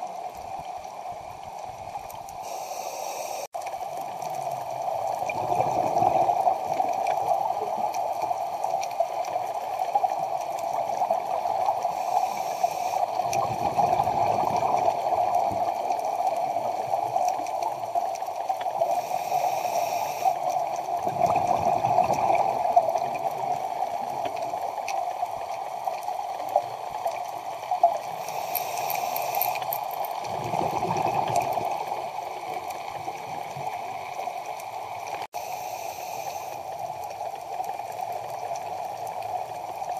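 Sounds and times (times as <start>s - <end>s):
underwater rushing background: 0.0s - 39.9s
regulator inhalation hiss: 2.4s - 3.5s, 11.8s - 13.2s, 18.8s - 20.5s, 28.1s - 29.7s, 35.4s - 36.9s
exhaled air bubbling: 4.5s - 35.3s.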